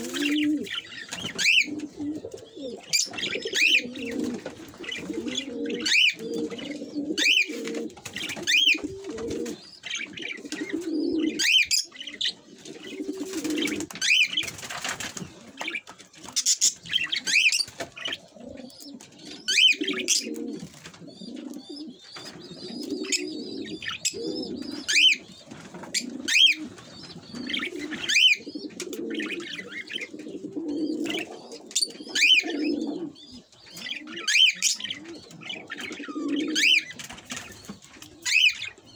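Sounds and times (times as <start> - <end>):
budgerigars chirping: 21.1 - 30.4, 31.0 - 38.9.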